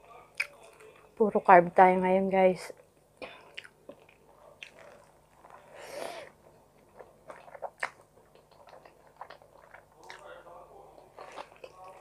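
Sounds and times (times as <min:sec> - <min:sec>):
chewing with wet mouth smacks: 0:06.8 - 0:12.0.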